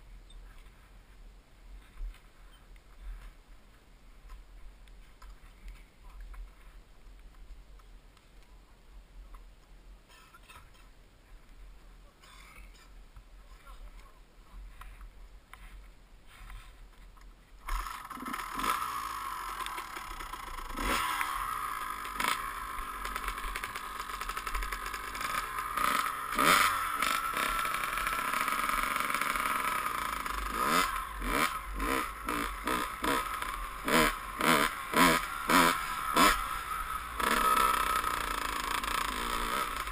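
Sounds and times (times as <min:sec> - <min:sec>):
dirt bike engine revving: 0:17.6 - 0:39.9.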